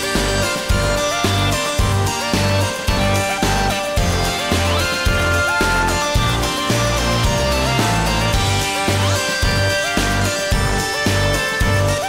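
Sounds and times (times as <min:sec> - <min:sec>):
background music with sliding melody: 0:00.0 - 0:12.0.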